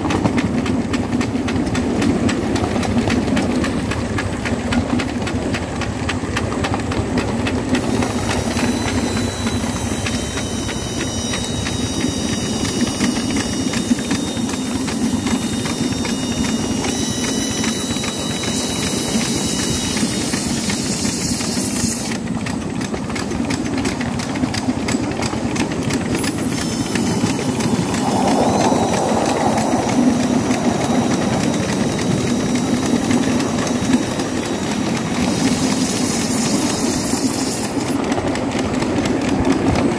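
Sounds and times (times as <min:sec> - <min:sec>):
steam locomotive running: 0:00.0 - 0:39.9
wheels clicking over rails: 0:00.0 - 0:39.9
steam hiss: 0:07.5 - 0:22.5, 0:26.0 - 0:38.2.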